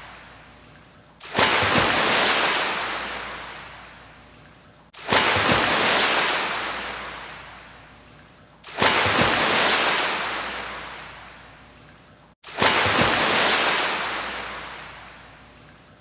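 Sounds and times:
ocean waves breaking: 0:05.0 - 0:07.6, 0:12.5 - 0:15.1.

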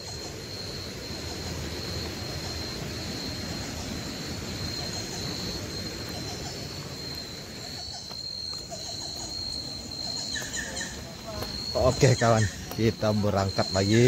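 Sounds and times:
high-pitched insect trill: 0:00.0 - 0:14.0.

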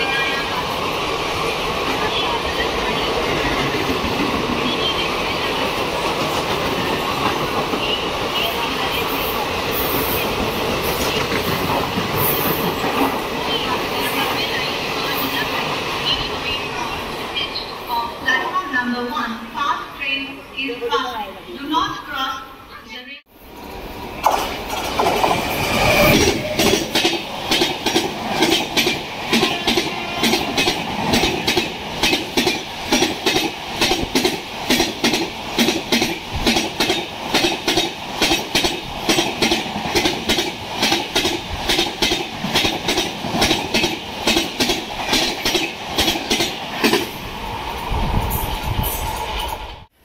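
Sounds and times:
train wheels clattering over rails: 0:24.2 - 0:47.1.

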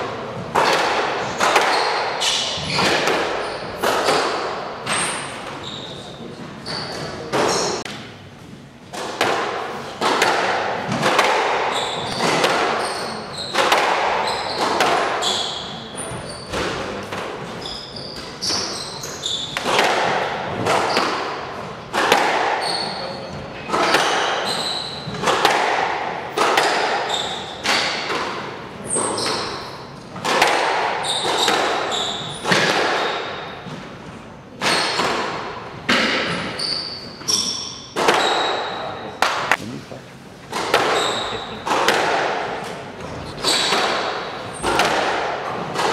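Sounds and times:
squash ball hits echoing: 0:00.0 - 0:05.6, 0:08.9 - 0:39.8, 0:40.5 - 0:45.9
shoes squeaking on wooden floor: 0:04.9 - 0:07.9, 0:11.6 - 0:13.6, 0:14.2 - 0:16.8, 0:24.4 - 0:25.2, 0:27.0 - 0:27.6, 0:31.0 - 0:32.5, 0:40.7 - 0:41.8.

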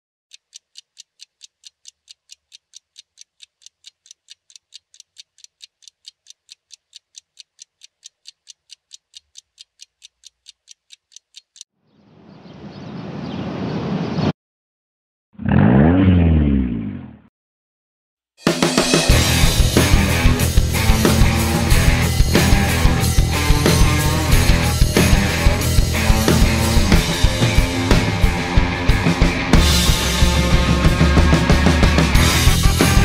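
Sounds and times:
clock-like ticking: 0:00.3 - 0:11.7, 0:18.9 - 0:33.0.

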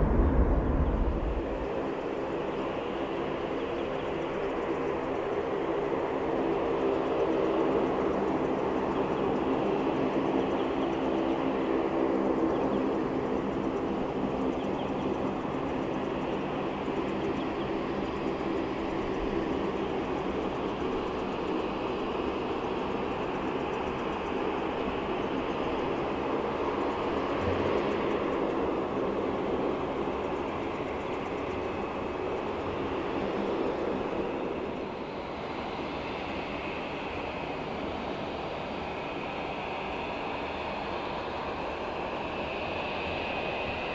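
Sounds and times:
faint high whine: 0:00.0 - 0:05.9
distant jet engines humming: 0:00.0 - 0:43.9.

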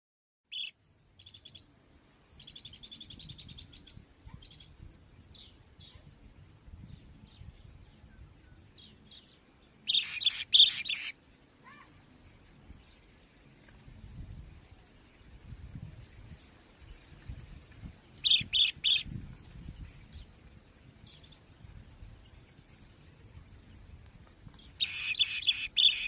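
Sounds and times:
young bird chirping: 0:00.5 - 0:01.6, 0:09.9 - 0:11.2, 0:18.2 - 0:19.1, 0:24.6 - 0:26.0.

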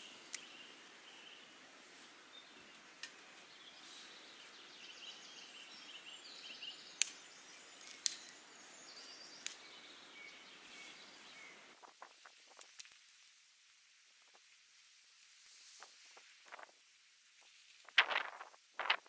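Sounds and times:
birds chirping: 0:00.0 - 0:12.8
steady outdoor hiss: 0:00.0 - 0:19.0
knife cracking kindling sticks: 0:07.0 - 0:07.2, 0:07.8 - 0:08.4, 0:09.4 - 0:09.7, 0:12.1 - 0:13.4
footsteps on grass: 0:17.8 - 0:19.0.

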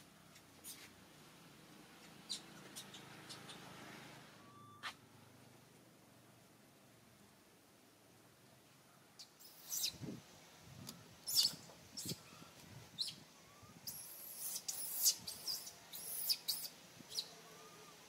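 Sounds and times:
animals chirping and squeaking: 0:02.2 - 0:03.8, 0:09.2 - 0:10.0, 0:11.3 - 0:12.3, 0:12.9 - 0:17.9.

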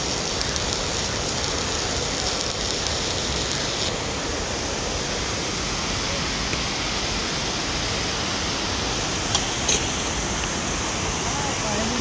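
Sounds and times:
welding arc crackling: 0:00.0 - 0:04.0
steady hiss: 0:00.0 - 0:12.0.

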